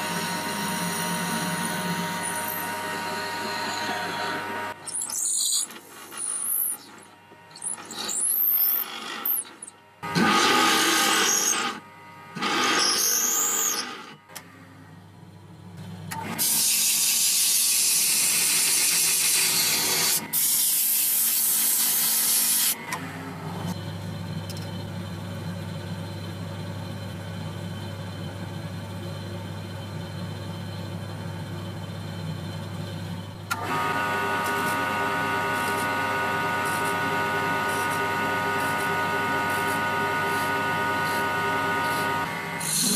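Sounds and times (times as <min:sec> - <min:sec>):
electric motor humming: 0:00.0 - 0:04.8, 0:33.5 - 0:42.9
power tool bursts: 0:10.0 - 0:11.8, 0:12.4 - 0:14.1.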